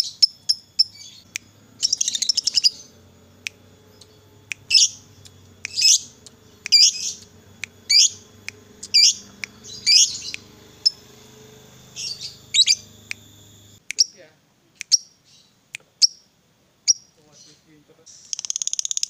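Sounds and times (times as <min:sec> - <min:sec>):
lovebird chirping shrilly: 0:00.0 - 0:14.2, 0:18.1 - 0:19.0.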